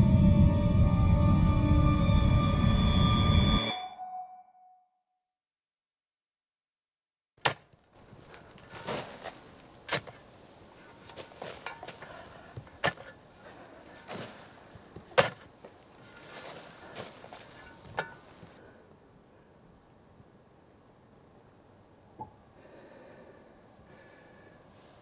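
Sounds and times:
scraping and rustling soil: 7.9s - 18.6s
sharp strikes in soil: 8.7s - 10.3s, 15.1s - 15.5s.

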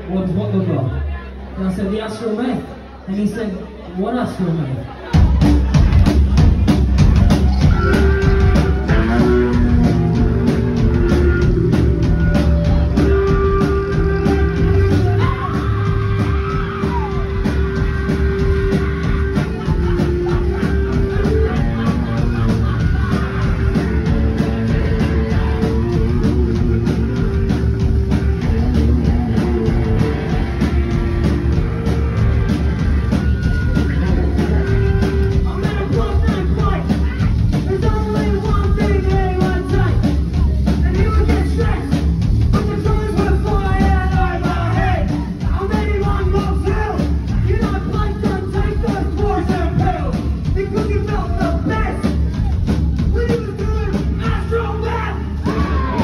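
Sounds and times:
bass guitar: 5.0s - 56.0s
drum kit: 5.1s - 56.0s
electric guitar: 7.0s - 36.1s.

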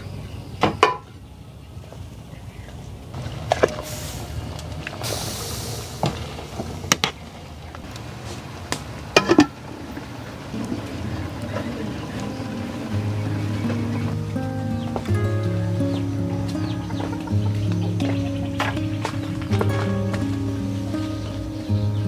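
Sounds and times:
broth bubbling: 7.9s - 14.4s
metal ladle clinking on pot: 9.2s - 9.6s
music: 11.5s - 22.0s.

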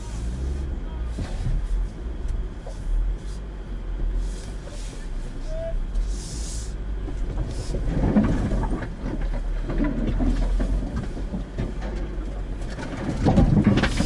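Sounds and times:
vehicle engine low rumble: 0.0s - 14.0s
suspension knocks and clunks: 7.0s - 14.0s.

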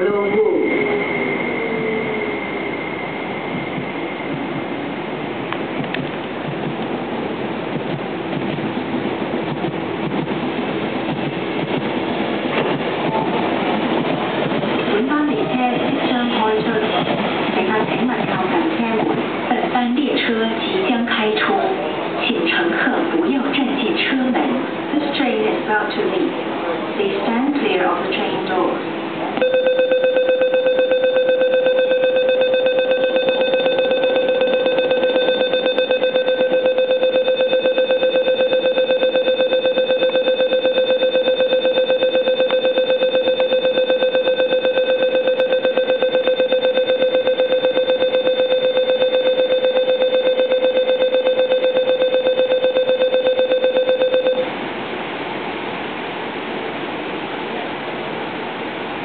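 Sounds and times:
rapid pulsing electronic beep: 29.4s - 54.4s.

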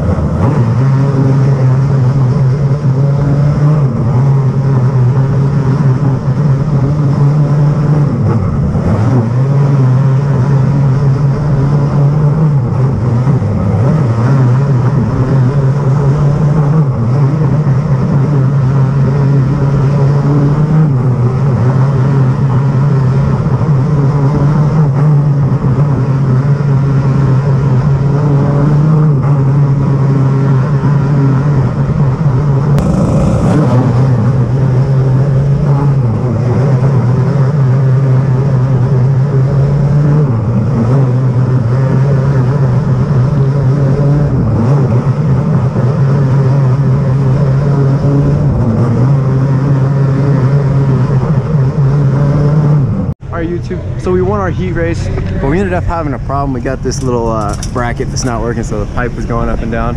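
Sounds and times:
kart engine revving: 32.7s - 37.2s, 54.9s - 59.9s
wind rush: 32.8s - 35.4s.

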